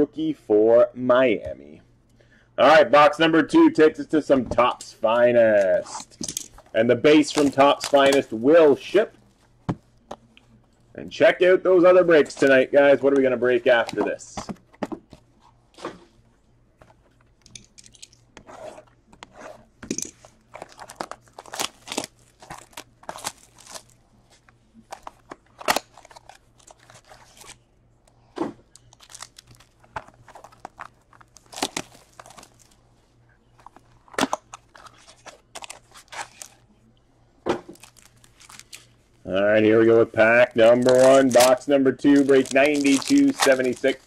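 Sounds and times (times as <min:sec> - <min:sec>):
packaging crinkling and tearing: 0:06.5 - 0:08.9, 0:20.2 - 0:27.6, 0:28.7 - 0:32.8, 0:33.6 - 0:36.6, 0:37.7 - 0:39.0, 0:40.5 - 0:44.0.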